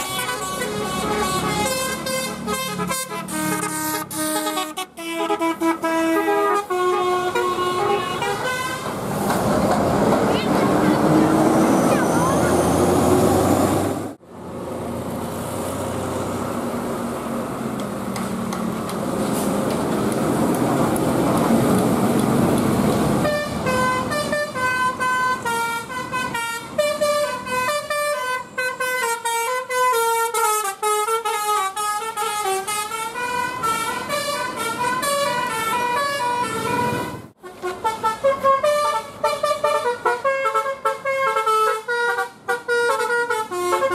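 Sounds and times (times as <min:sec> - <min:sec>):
bus horn playing a melody: 0:00.0 - 0:09.0, 0:23.2 - 0:43.9
road traffic passing: 0:00.0 - 0:43.9.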